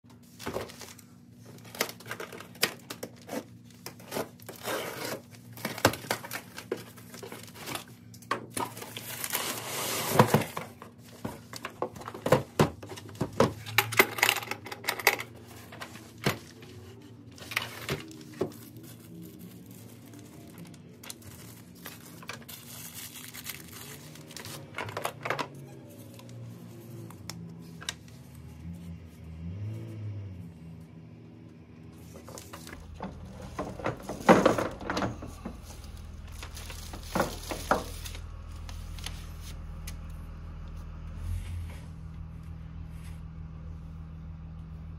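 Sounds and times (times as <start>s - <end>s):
plastic packaging crinkling: 0.2s - 12.2s, 15.3s - 27.1s, 32.0s - 40.1s.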